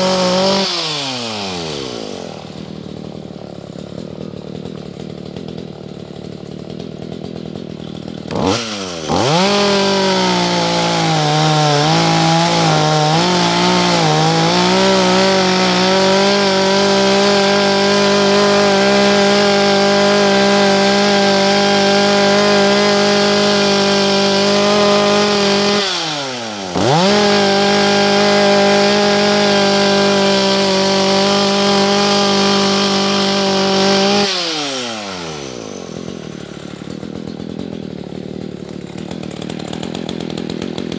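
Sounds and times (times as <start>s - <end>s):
chainsaw revving and cutting wood: 0.0s - 40.9s.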